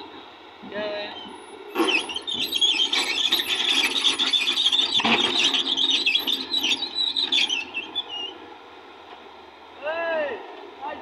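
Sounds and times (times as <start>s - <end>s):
excavator steel scraping and squealing: 0.8s - 8.5s.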